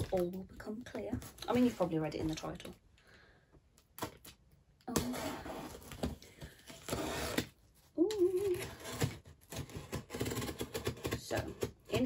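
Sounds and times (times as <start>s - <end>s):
blade scraping cardboard: 4.9s - 7.6s, 8.4s - 12.0s
box cutter slicing packing tape: 6.8s - 7.5s, 8.4s - 11.6s.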